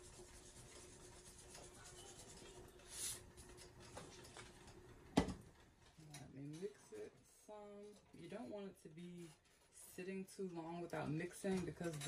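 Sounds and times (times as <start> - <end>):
seasoning grains rustling: 0.0 - 3.3.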